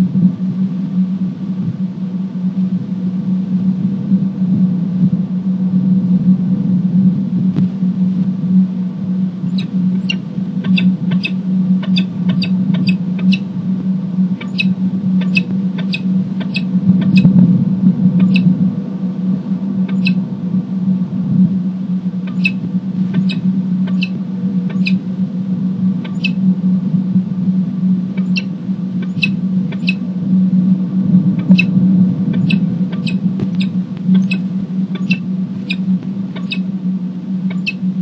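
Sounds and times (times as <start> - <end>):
steady low hum: 0.0 - 38.0
falcon chip calls: 9.5 - 13.4, 14.4 - 17.3, 18.2 - 18.5, 20.0 - 20.2, 22.3 - 22.6, 23.2 - 24.2, 24.8 - 25.0, 26.1 - 26.4, 28.2 - 30.0, 32.4 - 34.4, 35.0 - 35.8, 36.4 - 36.6, 37.5 - 37.8.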